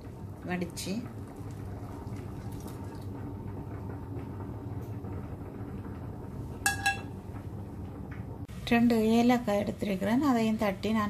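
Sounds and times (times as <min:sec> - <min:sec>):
low kitchen hum: 0:00.0 - 0:11.0
metal cookware clink: 0:06.6 - 0:07.1.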